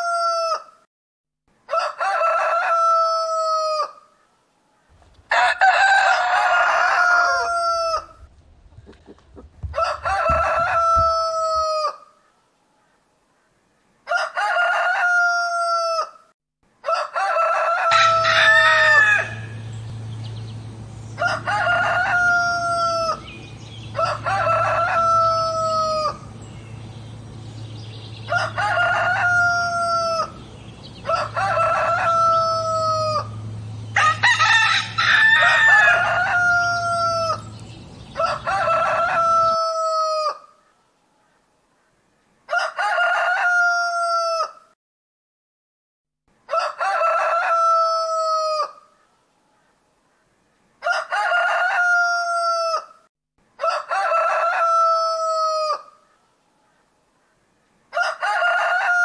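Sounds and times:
roosters crowing: 0.0 - 0.8, 1.6 - 4.2, 5.0 - 12.1, 14.0 - 40.6, 42.5 - 44.8, 46.4 - 49.0, 50.8 - 56.0, 57.9 - 59.0
steady low hum: 18.1 - 39.6.

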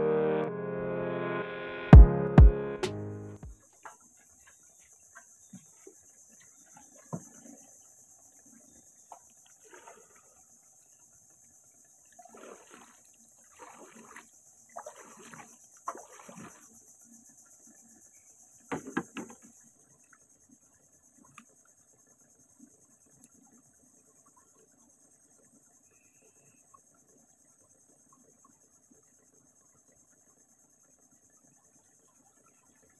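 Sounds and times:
water splashes: 3.5 - 18.0
high-pitched insect chorus: 3.8 - 32.9
sharp knocks: 18.7 - 19.4.

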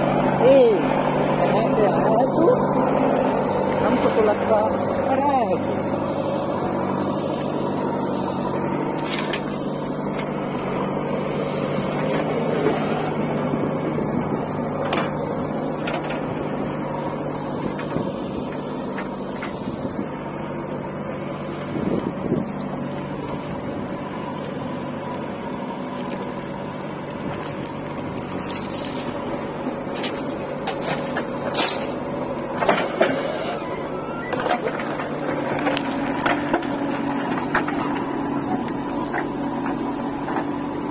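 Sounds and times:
diesel engine running under load: 0.0 - 40.9.

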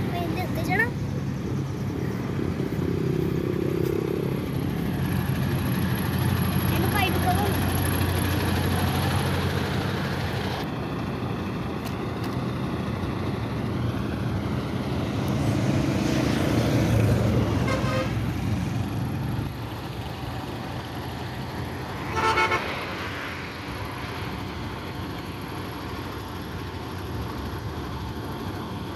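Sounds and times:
road traffic: 0.0 - 28.9
truck diesel engine running: 0.0 - 28.9
vehicle horn toot: 17.6 - 18.2, 22.1 - 22.7.

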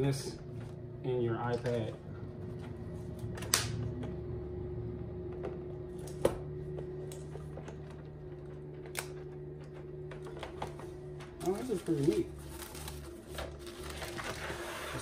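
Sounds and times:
low hum: 0.0 - 15.0.

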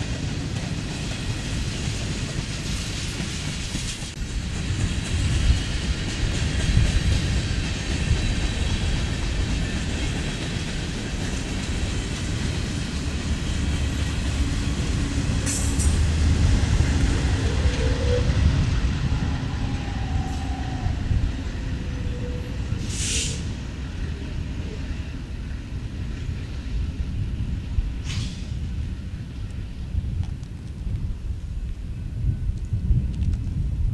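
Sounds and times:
freight train wheels rumbling: 0.0 - 33.9
short high hisses: 22.8 - 23.5, 28.0 - 28.5.

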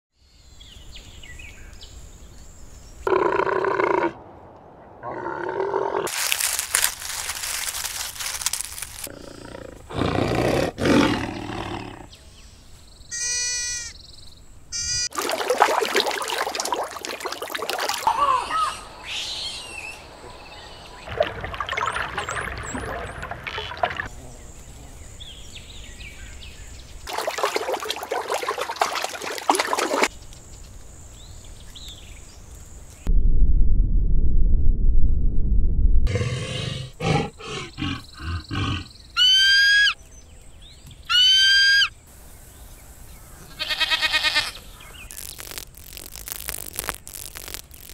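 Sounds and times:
animal calls and cries: 18.0 - 20.4, 36.1 - 40.0, 41.0 - 42.0.

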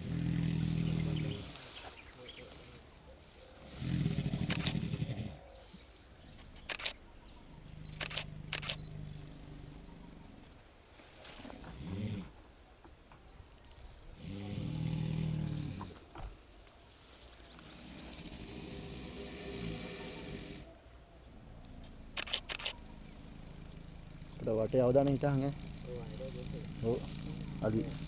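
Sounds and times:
elephant low rumbles: 0.0 - 16.5, 17.3 - 20.8, 21.5 - 28.0
short sharp clicks: 6.6 - 7.0, 8.0 - 8.9.

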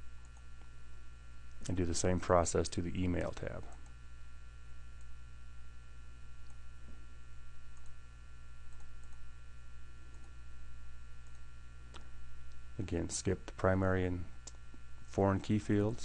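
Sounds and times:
electrical mains hum: 0.0 - 16.0
computer mouse clicks: 7.7 - 8.0, 8.7 - 9.2.

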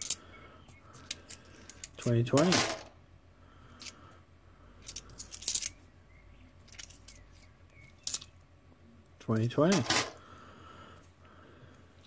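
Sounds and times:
coins clicking and clinking: 0.0 - 0.2, 1.0 - 2.9, 4.8 - 5.8, 6.7 - 8.3, 9.7 - 10.2.

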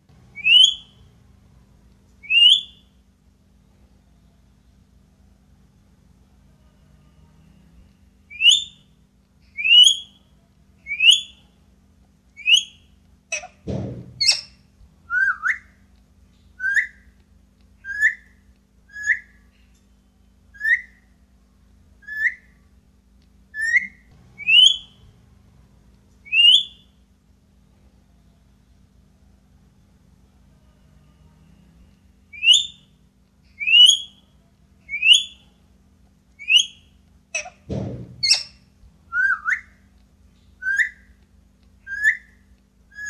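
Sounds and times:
parakeet whistled calls: 0.4 - 1.0, 2.2 - 2.8, 8.3 - 8.8, 9.6 - 10.2, 10.9 - 11.4, 12.4 - 13.6, 14.2 - 14.6, 20.6 - 21.0, 23.6 - 25.0, 26.2 - 26.9, 32.3 - 32.9, 33.6 - 34.2, 34.9 - 35.4, 36.4 - 37.6, 38.2 - 38.6, 40.6 - 41.1, 41.9 - 43.0.

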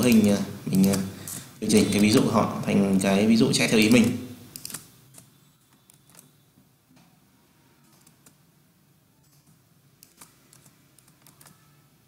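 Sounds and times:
faint mouse and keyboard clicks: 9.2 - 11.8.

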